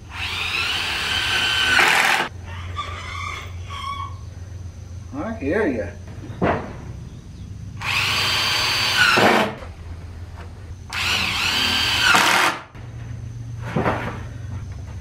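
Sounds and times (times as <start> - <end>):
cordless drill driving screws: 0.1 - 2.3, 7.8 - 9.4, 10.9 - 12.6.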